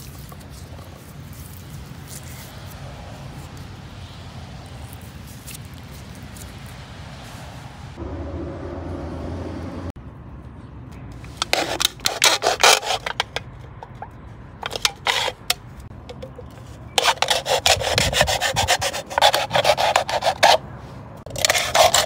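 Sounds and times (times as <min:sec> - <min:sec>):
tool scraping wood: 0:11.3 - 0:20.6, 0:21.3 - 0:22.0.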